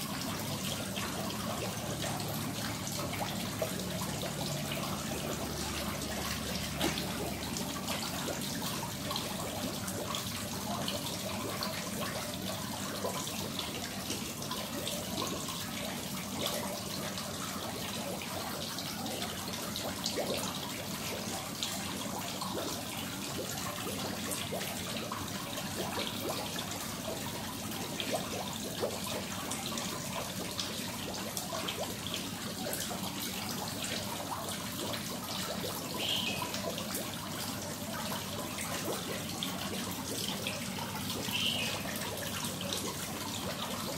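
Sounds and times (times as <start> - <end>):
fish splashing in pond: 0.8 - 10.1.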